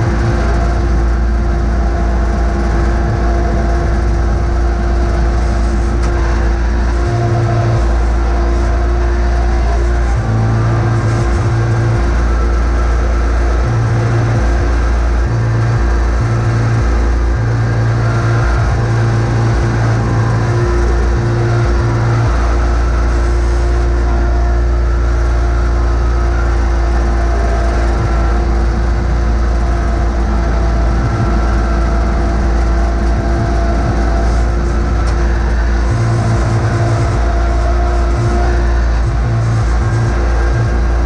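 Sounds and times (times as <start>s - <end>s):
garden tractor engine running: 0.0s - 41.0s.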